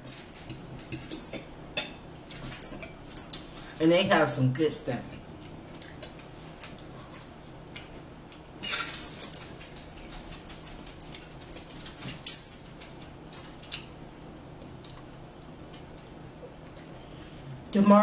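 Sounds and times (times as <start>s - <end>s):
people chewing: 5.3s - 17.6s.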